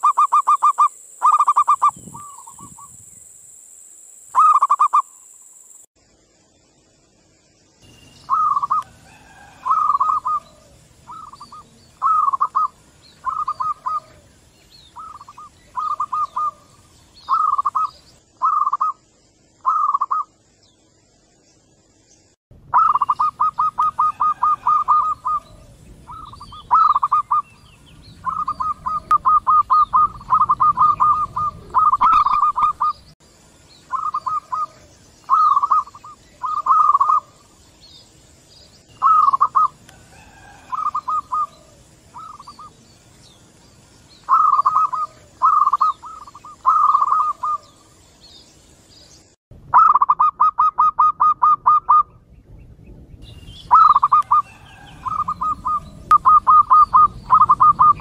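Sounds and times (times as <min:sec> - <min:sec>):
doves cooing: 0:08.3 - 0:19.0, 0:22.7 - 0:33.2, 0:33.9 - 0:37.6, 0:39.0 - 0:42.8, 0:44.2 - 0:47.9, 0:53.7 - 0:58.0.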